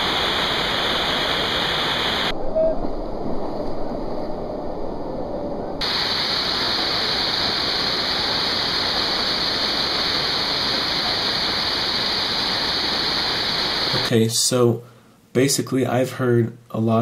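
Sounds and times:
waterfall roaring: 0:00.0 - 0:02.3, 0:05.8 - 0:14.1.

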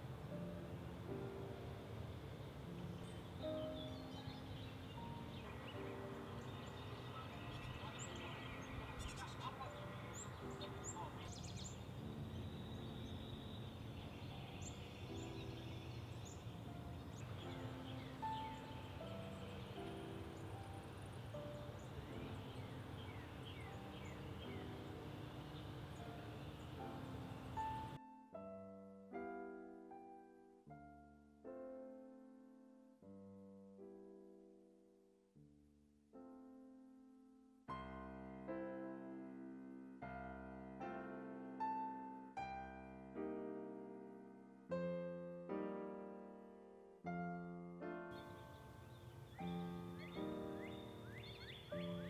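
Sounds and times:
outdoor hiss: 0:00.0 - 0:28.0
soft background music: 0:00.0 - 0:35.2, 0:36.1 - 0:52.0
high bird chirps: 0:48.2 - 0:52.0.

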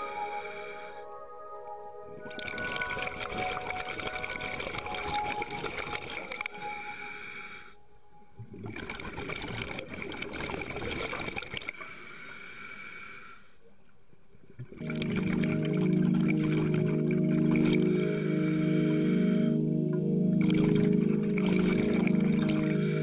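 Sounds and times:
music with held tones: 0:00.0 - 0:08.4, 0:14.8 - 0:23.0
underwater scuba bubbles: 0:02.2 - 0:07.5, 0:08.4 - 0:12.0, 0:14.4 - 0:19.4, 0:20.3 - 0:23.0.

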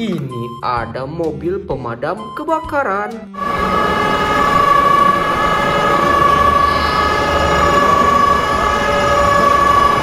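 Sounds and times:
horn long steady note: 0:03.4 - 0:10.0.

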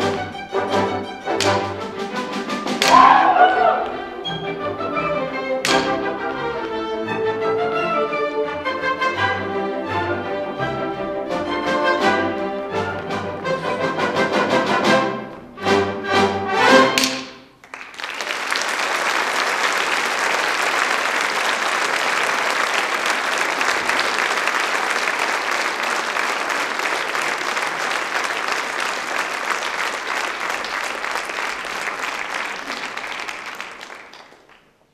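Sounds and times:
audience applauding: 0:02.8 - 0:04.1, 0:17.5 - 0:34.9.

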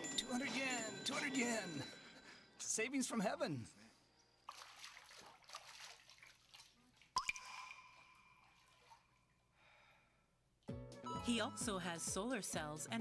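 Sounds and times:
water splashing in bath: 0:04.4 - 0:09.4.

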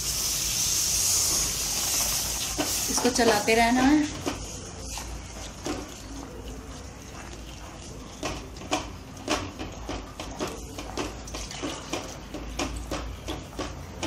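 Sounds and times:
wooden spatula scraping metal pan: 0:01.3 - 0:05.9.

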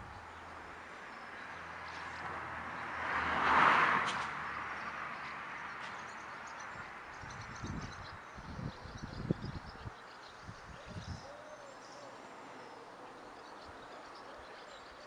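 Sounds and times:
vehicle passing by: 0:00.0 - 0:08.7.

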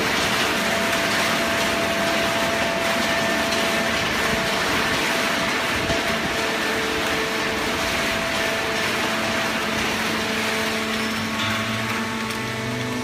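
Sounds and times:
hydraulic baler machine humming: 0:00.0 - 0:13.0.

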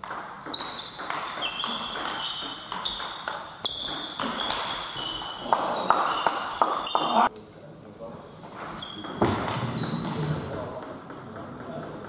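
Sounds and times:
ping-pong ball clicking: 0:00.0 - 0:04.8.

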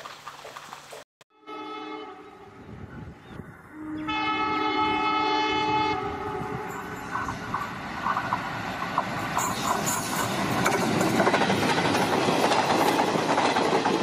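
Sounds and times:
locomotive multi-tone horn: 0:01.3 - 0:07.0
train engine rumble: 0:02.2 - 0:14.0.

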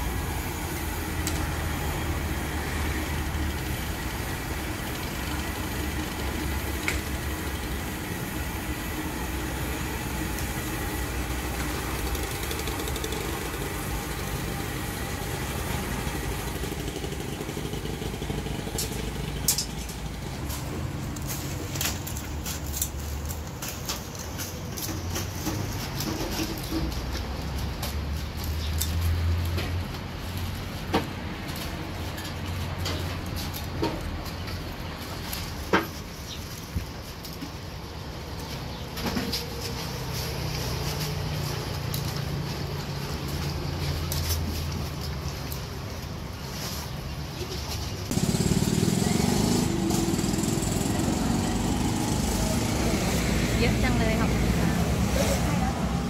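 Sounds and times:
small engine running: 0:00.0 - 0:22.0, 0:48.1 - 0:56.0
low motor rumble: 0:47.5 - 0:56.0.

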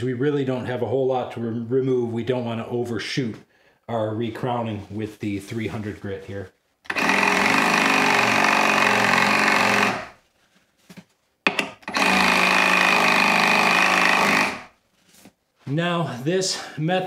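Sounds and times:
reciprocating saw running: 0:06.9 - 0:10.2, 0:11.8 - 0:14.7.

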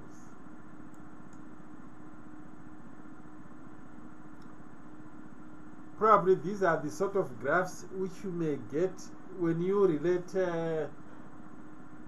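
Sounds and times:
low hum: 0:00.0 - 0:12.0
steady hiss: 0:05.9 - 0:10.9.

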